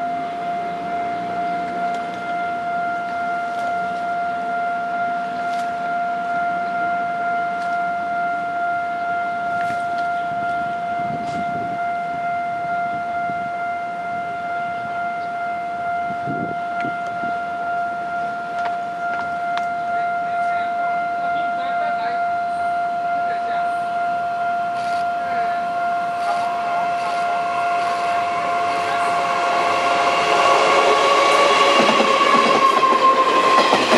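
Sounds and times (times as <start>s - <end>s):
level crossing alarm tone: 0.0s - 33.9s
train coaches rumbling: 0.0s - 33.9s
train wheel clicks: 31.6s - 33.9s.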